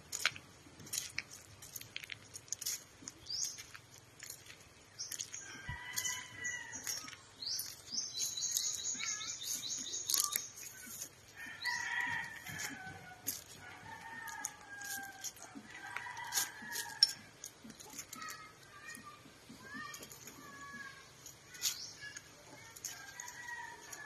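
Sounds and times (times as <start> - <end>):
roosters crowing: 5.4 - 7.0, 11.3 - 17.3, 22.9 - 24.0
high-pitched bird trill: 7.6 - 10.8.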